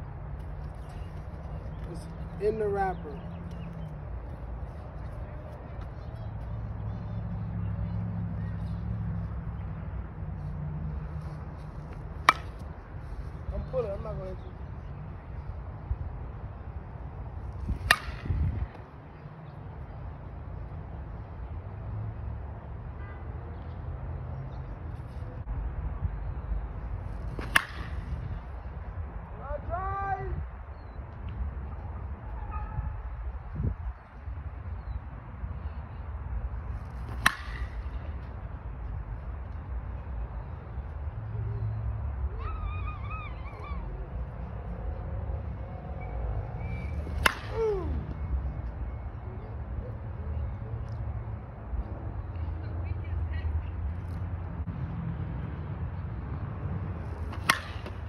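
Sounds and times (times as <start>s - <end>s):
bat hitting softball: 12.2s - 12.7s, 17.6s - 18.8s, 27.3s - 28.3s, 36.9s - 38.0s, 46.7s - 48.2s, 57.1s - 58.0s
wind rumble on microphone: 12.8s - 19.1s, 25.3s - 36.8s
wind on microphone: 17.4s - 18.8s, 32.5s - 34.0s.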